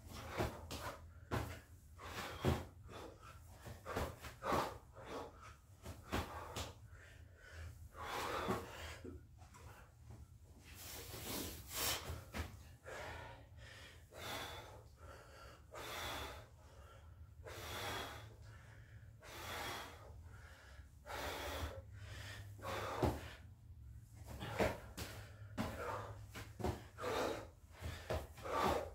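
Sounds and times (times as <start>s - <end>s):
man breathing hard: 0.0s - 28.9s.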